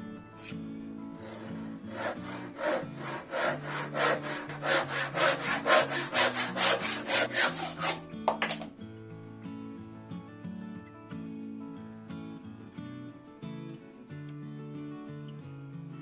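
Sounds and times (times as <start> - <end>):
handsaw cutting wood: 1.2 - 8.6.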